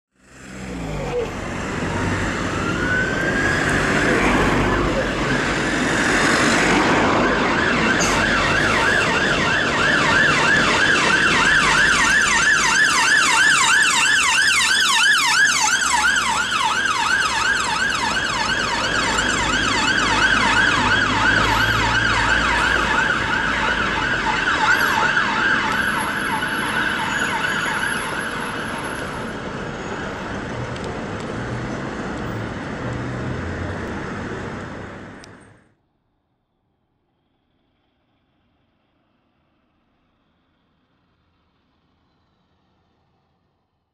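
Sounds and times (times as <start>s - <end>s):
traffic rumbling: 0.2s - 35.8s
ambulance siren yelping: 0.8s - 30.2s.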